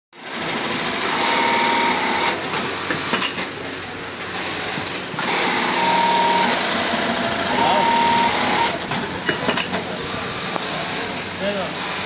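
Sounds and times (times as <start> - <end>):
sewing machine stitching: 5.2 - 9.8.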